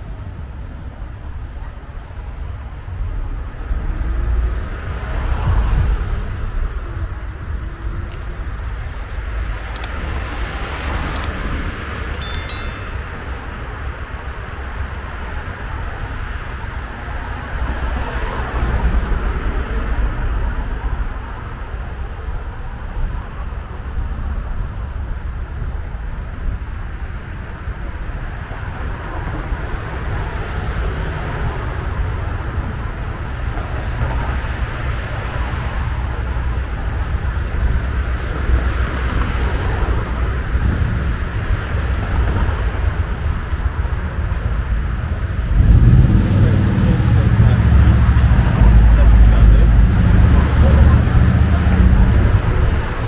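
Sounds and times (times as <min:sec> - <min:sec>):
metallic clinks: 0:12.2 - 0:13.3
low traffic rumble: 0:13.0 - 0:53.0
cars passing by: 0:14.3 - 0:25.1, 0:26.1 - 0:53.0.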